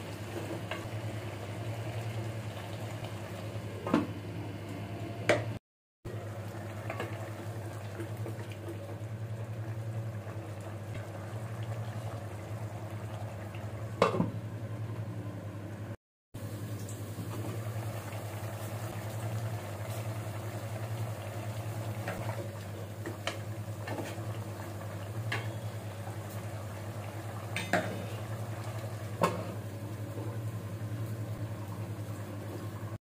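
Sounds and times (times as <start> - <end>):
curry bubbling in a pot: 6.1 - 14.4, 16.4 - 33.0.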